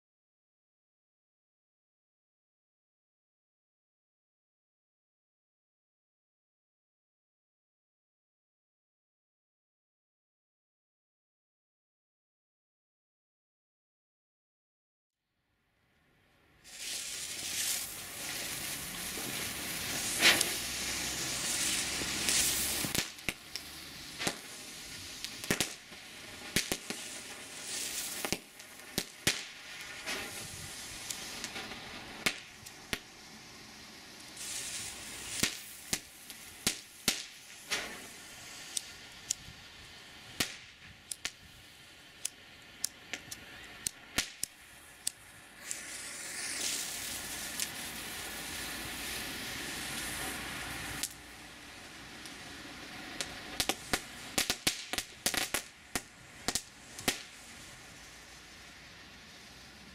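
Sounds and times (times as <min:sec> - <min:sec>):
firework crackling: 0:16.4 - 0:59.9
firework hissing: 0:16.5 - 0:59.9
faint fizz: 0:16.6 - 0:22.9, 0:45.3 - 0:52.6
firework loud crack: 0:16.6 - 0:59.9.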